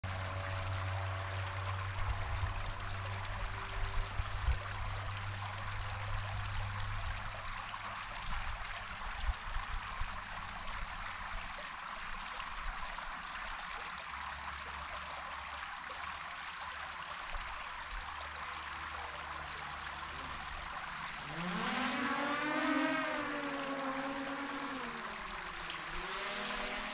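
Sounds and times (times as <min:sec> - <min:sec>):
wind rumble on microphone: 0:01.6 - 0:11.6.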